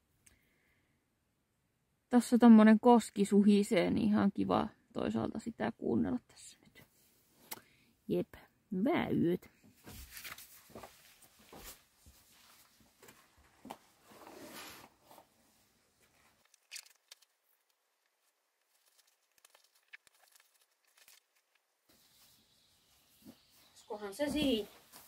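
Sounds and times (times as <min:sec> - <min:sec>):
backpack fabric rustling: 0:09.8 - 0:16.4.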